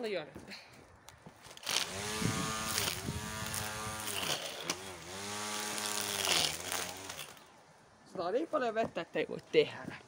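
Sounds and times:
string trimmer whirring: 1.5s - 7.6s.

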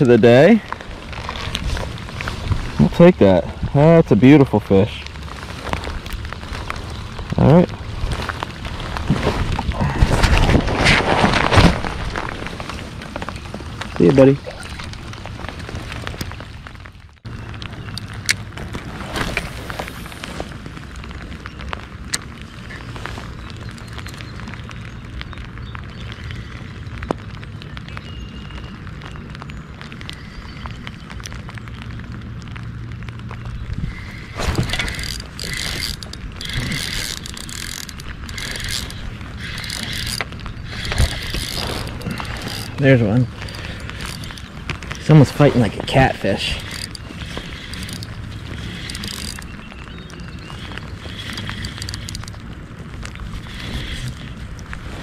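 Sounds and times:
steady rain hissing: 0.0s - 18.2s, 18.8s - 55.0s
raindrops hitting close by: 0.0s - 55.0s
fishing reel gears whirring: 33.9s - 42.8s, 43.4s - 52.4s, 53.3s - 54.4s.

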